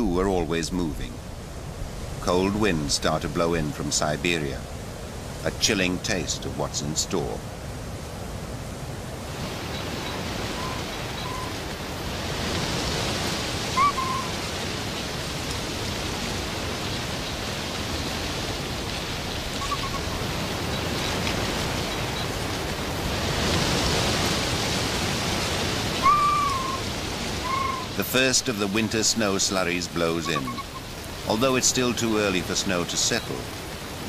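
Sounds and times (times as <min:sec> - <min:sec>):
wind gusting through forest: 0:00.0 - 0:34.0
short bird calls: 0:09.8 - 0:11.6, 0:13.6 - 0:14.6, 0:19.3 - 0:21.2, 0:25.9 - 0:28.0, 0:30.2 - 0:31.0.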